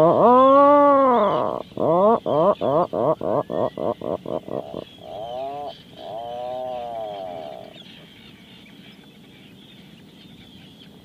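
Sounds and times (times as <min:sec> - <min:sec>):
puffin calling: 0:00.0 - 0:08.4.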